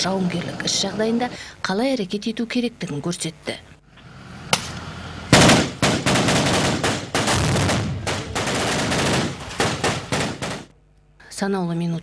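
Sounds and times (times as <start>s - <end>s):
automatic rifle fire: 5.3s - 10.7s.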